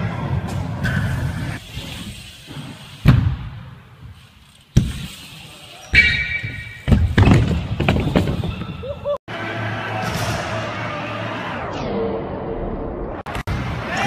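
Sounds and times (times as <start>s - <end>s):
bikes thudding onto ramps: 0.4s - 9.1s
bike and rider clattering down: 6.2s - 8.9s.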